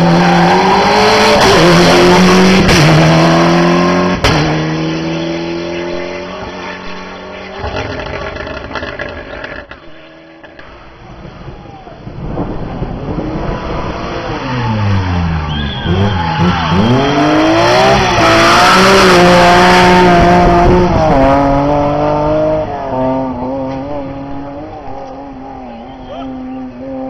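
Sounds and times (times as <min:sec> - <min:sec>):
tyres squealing: 0:07.3 - 0:10.7
race car engine revving: 0:12.6 - 0:25.6.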